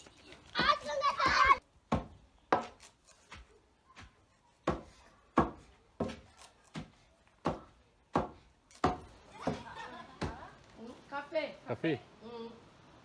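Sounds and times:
wooden pestle pounding thuds: 0.6 - 9.6.

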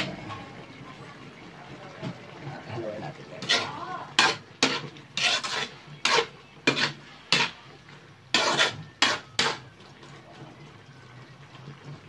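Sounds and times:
metal spatula scraping a wok: 3.3 - 9.7.

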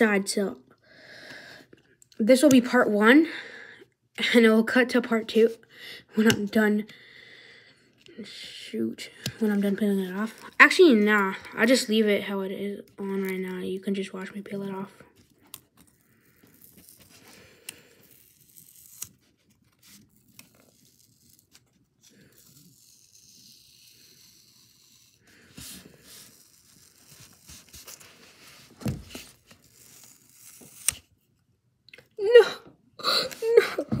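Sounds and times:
grip tape tearing and rustling: 15.1 - 31.2.

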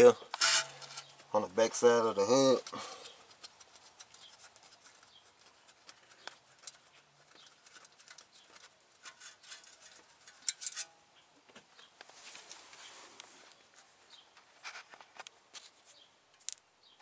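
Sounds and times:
small metal parts clicking: 2.5 - 10.9.

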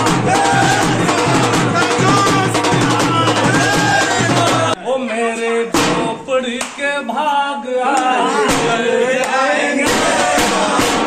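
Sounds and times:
drumming: 0.0 - 4.8, 5.7 - 6.2, 8.4 - 11.0
man singing loudly: 0.0 - 8.3.

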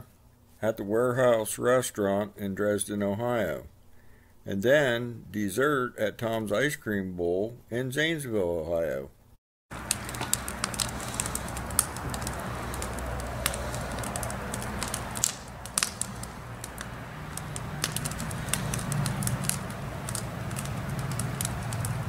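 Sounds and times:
campfire crackling and popping: 9.7 - 22.0
low hum: 9.7 - 22.0.

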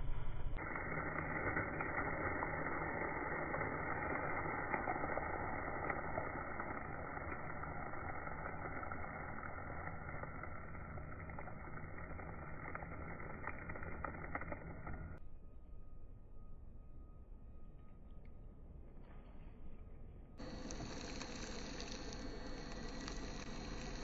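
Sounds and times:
car tire rolling on asphalt: 0.6 - 15.2
faint crackles: 0.6 - 15.2, 20.4 - 24.0.

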